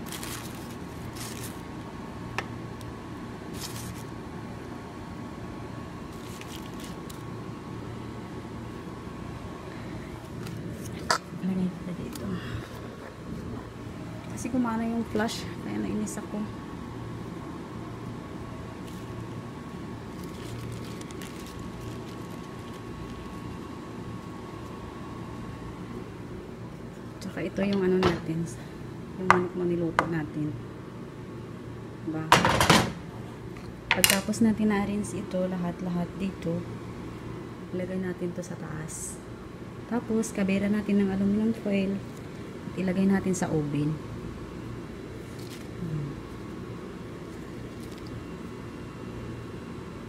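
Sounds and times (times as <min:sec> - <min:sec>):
soft handling sounds: 0:00.0 - 0:01.8, 0:03.5 - 0:04.2, 0:06.1 - 0:07.3, 0:18.8 - 0:19.3, 0:20.0 - 0:23.6, 0:45.1 - 0:48.6
parchment paper rustling: 0:00.0 - 0:01.9, 0:03.5 - 0:04.2, 0:06.1 - 0:07.3, 0:10.2 - 0:13.6, 0:18.7 - 0:24.8, 0:45.0 - 0:48.6
steady low hum: 0:00.0 - 0:50.0.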